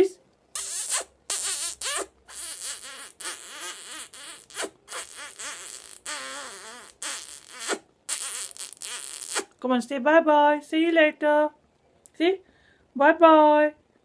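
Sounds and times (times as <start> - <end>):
smacking kiss sounds: 0.5 - 9.6.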